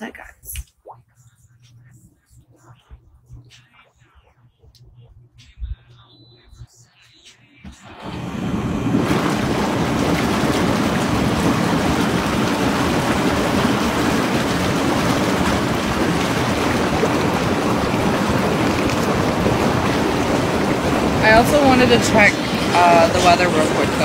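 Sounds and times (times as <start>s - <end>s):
hot tub jets churning water: 7.8s - 24.0s.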